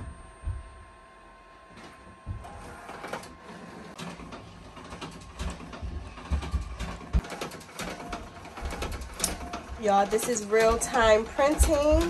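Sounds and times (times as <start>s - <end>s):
printer clicking and knocking: 3.9s - 12.0s.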